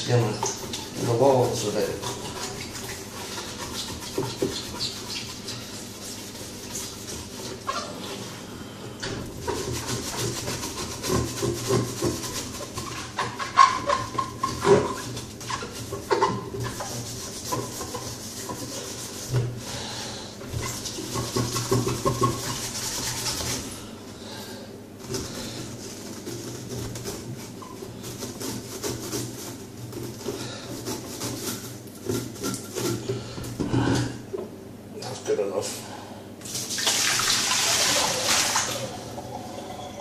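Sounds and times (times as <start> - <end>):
hand scrubbing plastic: 0.0 - 8.3, 9.0 - 23.8, 25.0 - 33.9.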